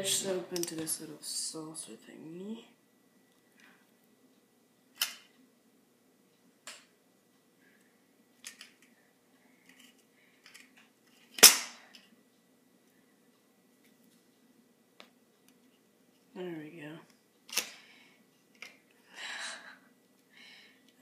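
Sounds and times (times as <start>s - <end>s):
loud snap: 11.4s - 11.8s.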